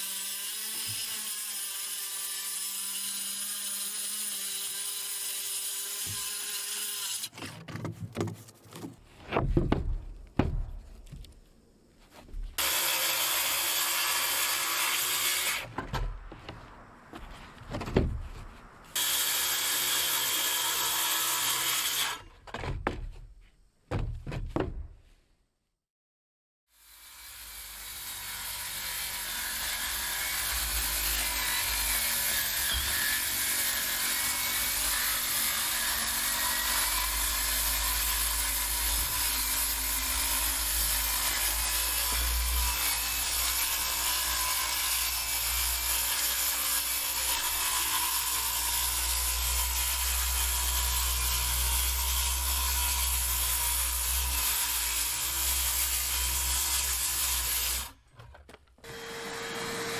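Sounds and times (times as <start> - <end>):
circular saw cutting: 0.0 - 7.4, 12.6 - 15.7, 18.9 - 22.3, 26.7 - 58.0, 58.8 - 59.9.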